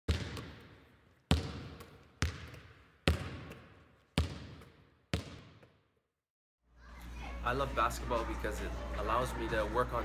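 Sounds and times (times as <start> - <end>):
basketball bouncing on hard floor: 0.1 - 5.8.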